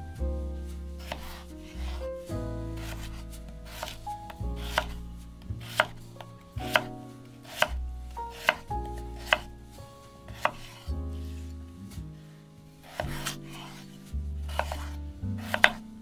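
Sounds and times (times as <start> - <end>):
soft background music: 0.0 - 16.0
knife slicing potato on board: 1.0 - 2.0, 2.8 - 4.0, 4.6 - 5.0, 5.6 - 6.0, 6.6 - 7.7, 8.3 - 9.5, 10.3 - 10.8, 12.9 - 13.8, 14.5 - 15.8.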